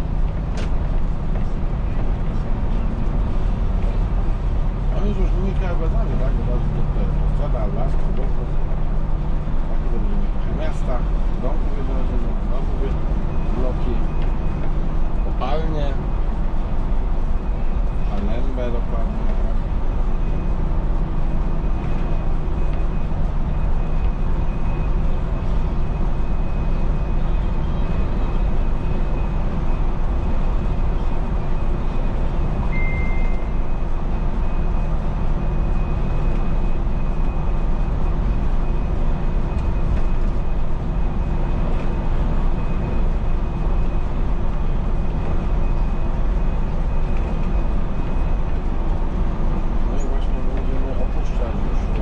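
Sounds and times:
bus engine hum and road noise: 0.0s - 52.0s
short high beep: 32.7s - 33.6s.

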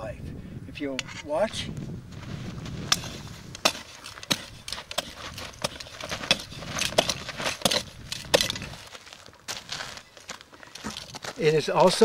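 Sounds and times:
shovel blade chopping dry dirt: 2.6s - 8.9s.

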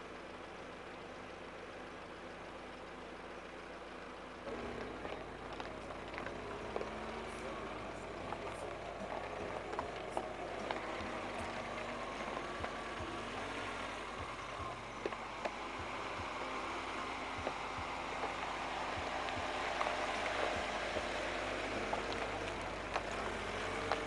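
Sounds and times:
car engine running: 0.0s - 24.0s
tyres on gravel: 0.0s - 24.0s.

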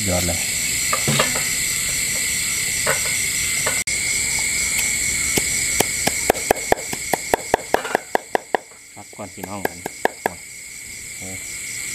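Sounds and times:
crickets and night insects: 0.0s - 11.9s
cleaver chopping on wooden block: 9.4s - 10.3s.

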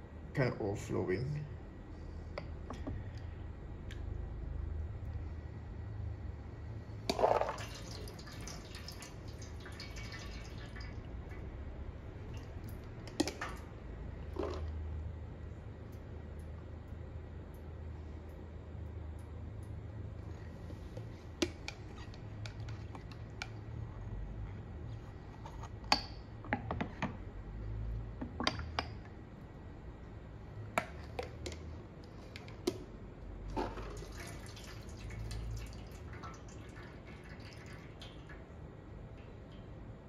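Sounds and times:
water trickling: 7.2s - 11.6s, 33.6s - 38.5s.

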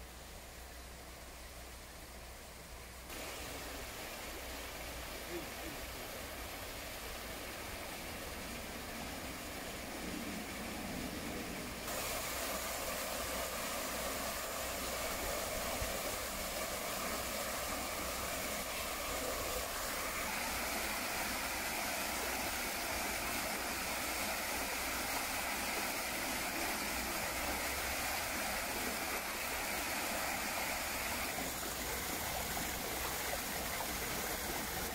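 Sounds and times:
creek running over rocks: 0.0s - 34.9s
waterfall pouring into a pool: 3.1s - 34.9s.

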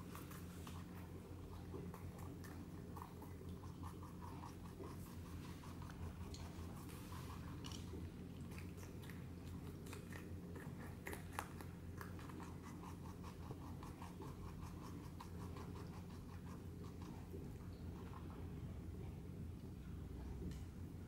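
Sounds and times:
rabbits chewing crisp bites: 0.0s - 18.9s.

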